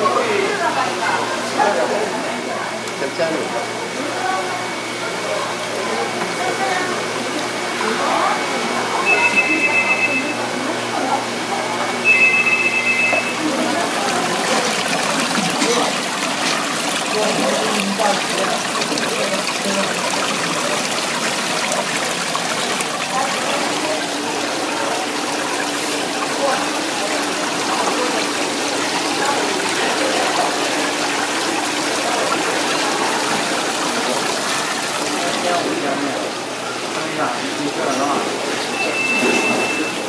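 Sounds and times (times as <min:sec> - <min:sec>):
running water trickling and splashing: 0:13.2 - 0:40.0.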